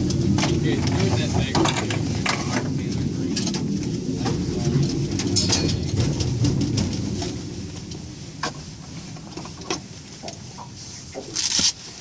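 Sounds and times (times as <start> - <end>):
wind buffeting microphone: 0.0 - 11.2
small clicks and rustles: 0.0 - 12.0.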